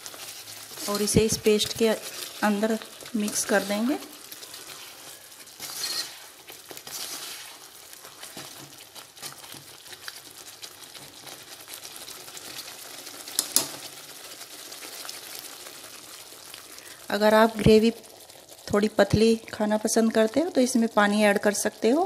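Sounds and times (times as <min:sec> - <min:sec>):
gravy sizzling: 0:00.0 - 0:22.0
spoon scraping metal pan: 0:00.7 - 0:01.5, 0:03.2 - 0:09.4.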